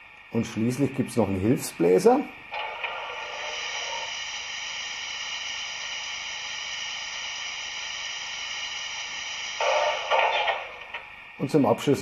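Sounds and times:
steady hiss of steam: 0.0 - 12.0.

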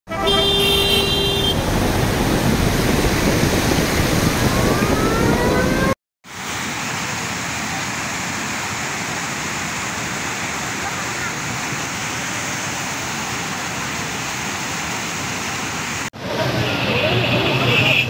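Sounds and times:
floodwater rushing with deep rumble: 0.2 - 18.0
rising whine: 1.6 - 6.0.

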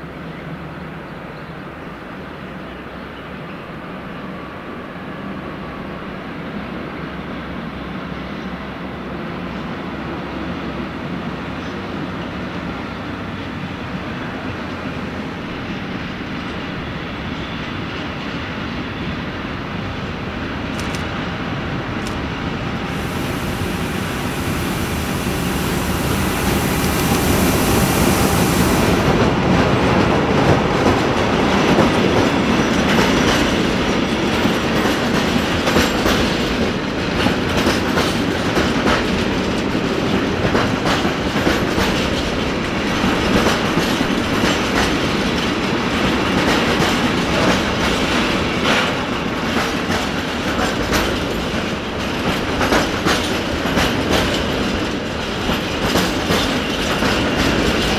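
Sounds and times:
locomotive passing: 22.4 - 31.7
loud hiss: 22.8 - 29.5
wheels clacking over rail joints: 29.6 - 57.9.

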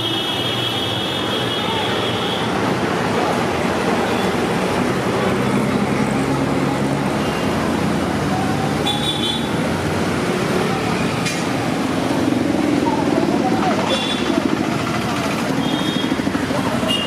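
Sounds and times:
street traffic noise: 0.0 - 17.0
vehicle engine humming: 2.5 - 17.0.

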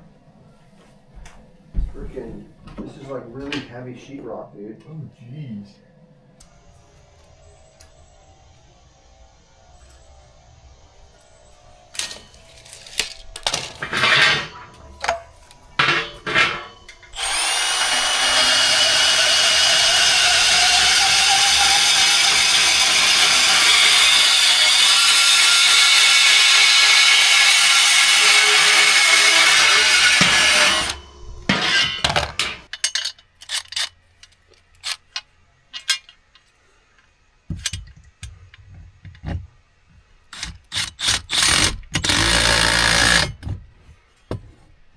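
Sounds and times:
knocks and clatter of tools: 12.0 - 17.0, 31.5 - 36.5, 37.5 - 39.5
electric power tool running: 17.1 - 31.1.

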